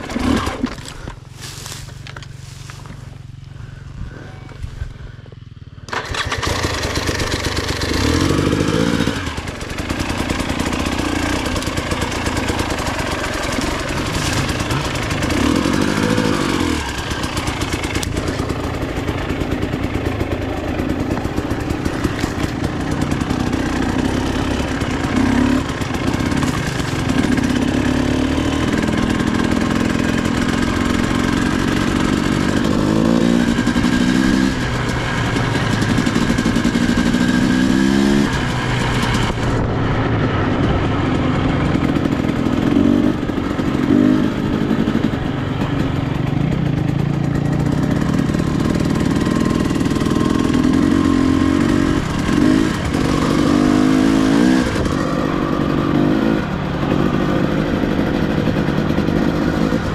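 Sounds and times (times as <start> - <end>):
dirt bike engine revving: 0.0 - 5.2, 5.8 - 59.9.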